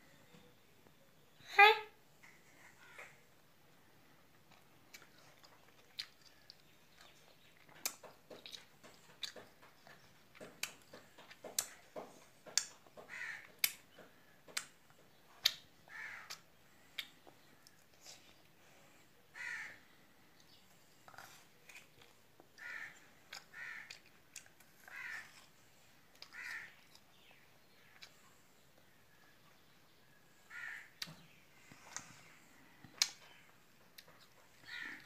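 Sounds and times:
harsh rasping calls: 0:24.8 - 0:25.4, 0:26.2 - 0:26.8, 0:30.4 - 0:31.0.

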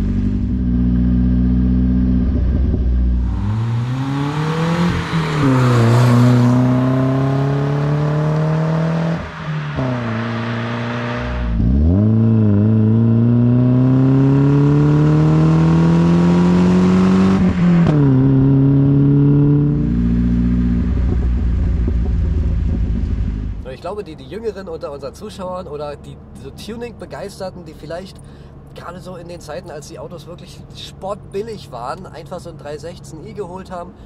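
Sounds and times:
car engine accelerating hard: 0:00.0 - 0:23.6.

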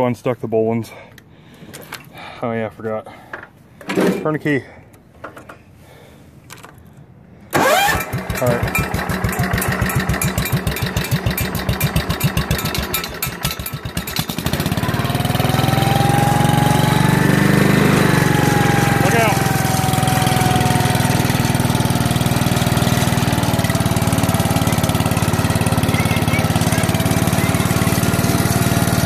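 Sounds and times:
garden tractor engine starting: 0:07.5 - 0:29.0.

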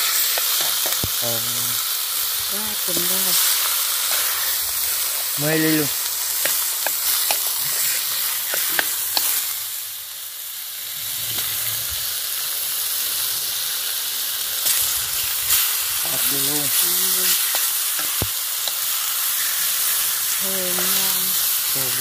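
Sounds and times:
fish sizzling in a wok: 0:00.0 - 0:22.0
chopsticks clicking on pan: 0:06.4 - 0:07.5, 0:17.4 - 0:18.9.

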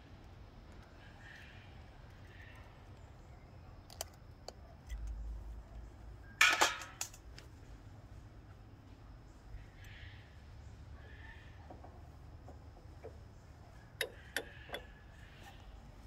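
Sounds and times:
metal-on-metal clicks: 0:13.9 - 0:15.0.

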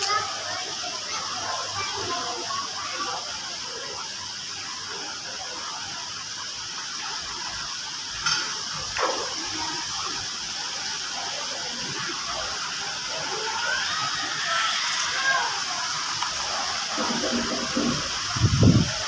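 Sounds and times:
fountain and waterfall splashing: 0:00.0 - 0:19.0.

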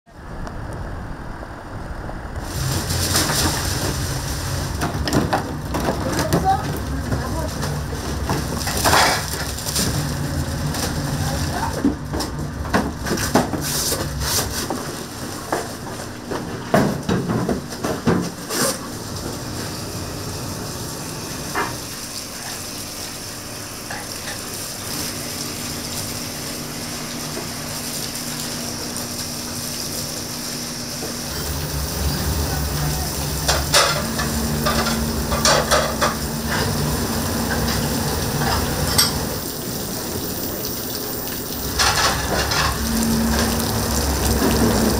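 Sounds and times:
kitchen knocks and clatters: 0:04.7 - 0:10.0, 0:16.3 - 0:18.4, 0:33.4 - 0:36.8, 0:41.8 - 0:42.8.

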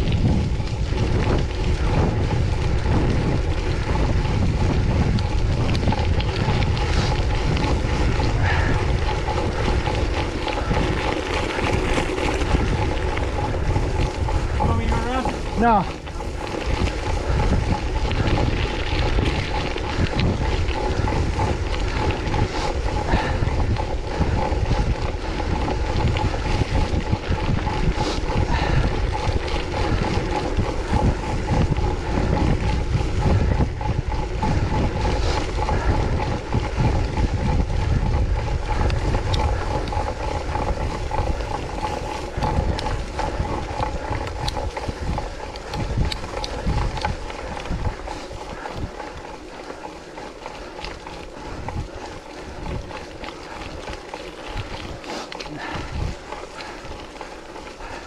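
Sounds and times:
bicycle tyre and drivetrain noise: 0:00.0 - 0:58.0
wind buffeting microphone: 0:00.0 - 0:58.0.

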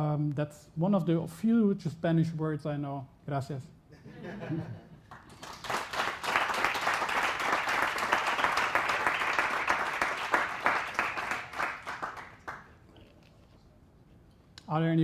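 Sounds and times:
audience applauding: 0:05.0 - 0:12.7.

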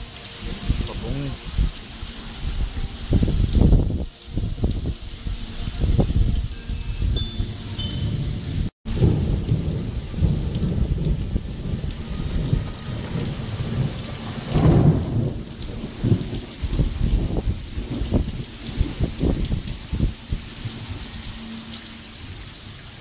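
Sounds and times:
heavy rain: 0:00.0 - 0:23.0
hail pelting down: 0:08.9 - 0:21.5.

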